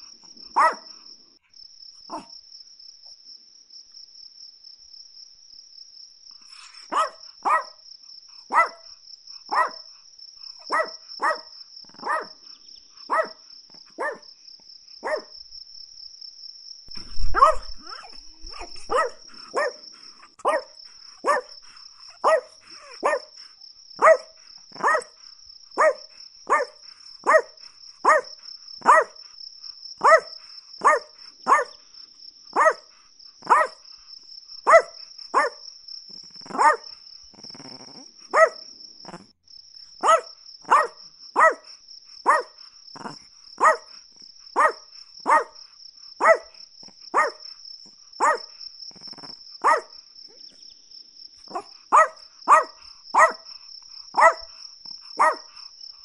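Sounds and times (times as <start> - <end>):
small dog yapping: 0.6 - 0.8, 2.1 - 2.3, 6.5 - 7.8, 8.5 - 8.8, 9.5 - 9.8, 10.7 - 12.4, 13.1 - 13.4, 14.0 - 14.2, 15.0 - 15.3, 17.0 - 19.8, 20.4 - 21.5, 22.1 - 23.4, 24.0 - 25.2, 25.8 - 29.2, 30.0 - 31.7, 32.6 - 32.8, 33.4 - 33.8, 34.7 - 35.6, 36.4 - 36.8, 37.4 - 39.3, 40.0 - 43.9, 44.6 - 45.6, 46.2 - 47.4, 48.2 - 50.4, 51.5 - 53.5, 54.2 - 54.5, 55.2 - 55.5.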